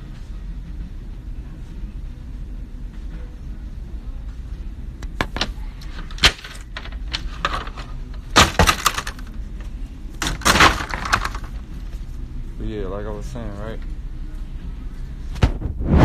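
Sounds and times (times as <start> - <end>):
steady low rumble: 0.0 - 5.8, 11.5 - 16.0.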